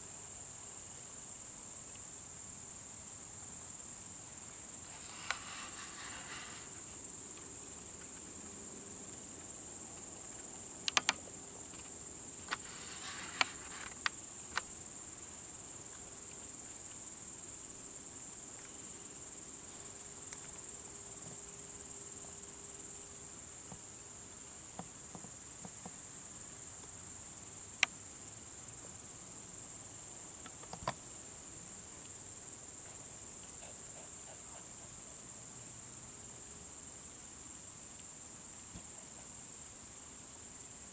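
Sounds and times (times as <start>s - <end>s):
crickets chirping chorus: 0.0s - 40.9s
sharp clicks: 10.8s - 11.2s.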